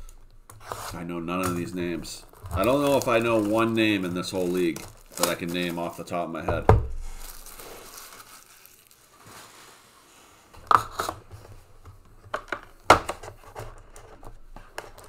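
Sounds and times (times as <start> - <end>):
sharp knocks and crinkles: 0.0 - 8.9, 10.6 - 15.0
cardboard box rustling: 1.5 - 6.0.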